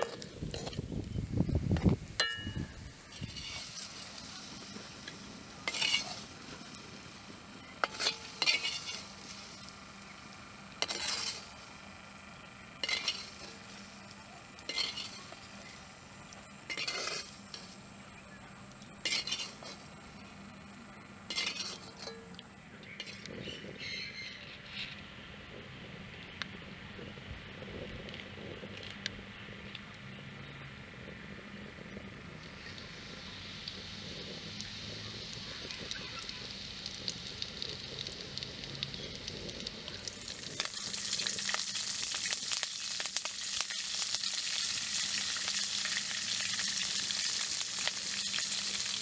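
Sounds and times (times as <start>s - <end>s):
ladle scraping iron wok: 0.0s - 0.9s, 2.2s - 6.6s, 7.8s - 9.6s, 10.8s - 11.6s, 12.8s - 13.8s, 14.6s - 15.6s, 16.6s - 17.8s, 19.0s - 19.9s, 21.3s - 22.4s, 23.0s - 23.4s
hot oil sizzling: 0.0s - 25.0s, 30.8s - 49.0s.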